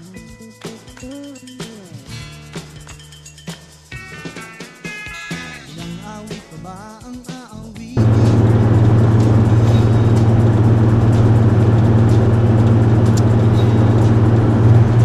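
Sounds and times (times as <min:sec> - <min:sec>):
song with singing: 0:00.0 - 0:02.2, 0:05.7 - 0:08.3
car engine hum: 0:08.0 - 0:15.0
road and wind noise: 0:08.0 - 0:15.0.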